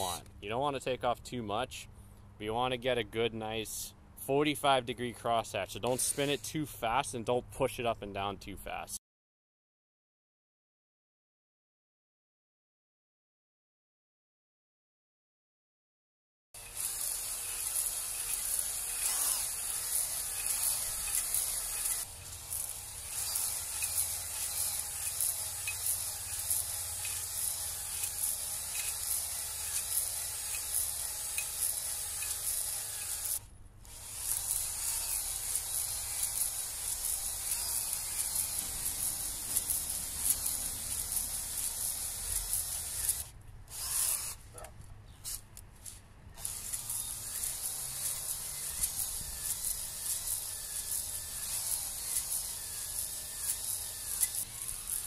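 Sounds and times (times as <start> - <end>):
drill spinning hone in metal bore: 16.6 - 44.4, 46.4 - 55.0.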